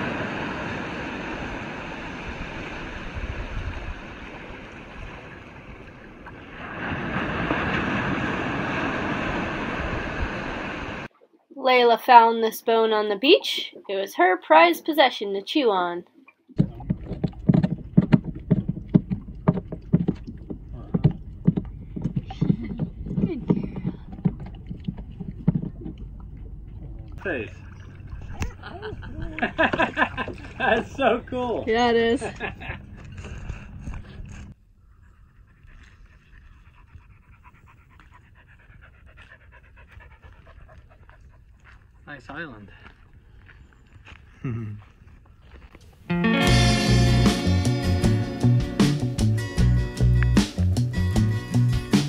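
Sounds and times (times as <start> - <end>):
low steady rumble: 16.6 - 34.6
dog panting: 35.0 - 42.1.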